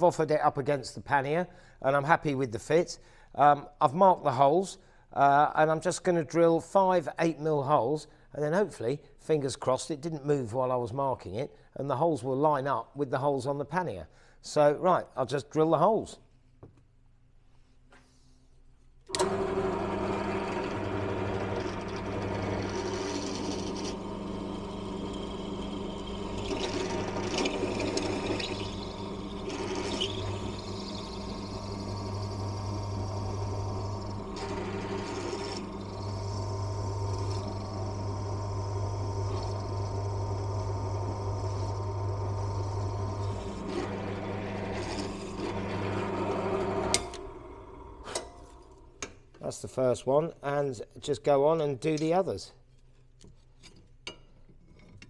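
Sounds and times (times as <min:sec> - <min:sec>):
pillar drill drilling metal: 0:19.1 - 0:48.8.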